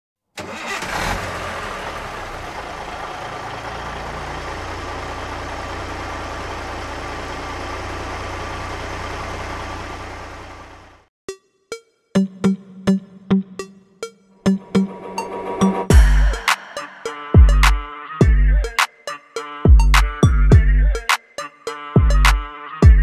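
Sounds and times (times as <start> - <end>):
heavy vehicle engine idling: 0.9 - 11.1, 15.9 - 17.7.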